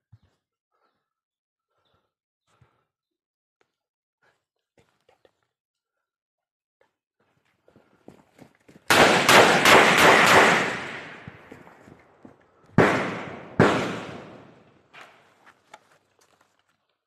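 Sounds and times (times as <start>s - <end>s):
gunshots with echoes: 8.9s - 11.9s, 12.7s - 14.9s
faint cracks: 14.2s - 17.0s.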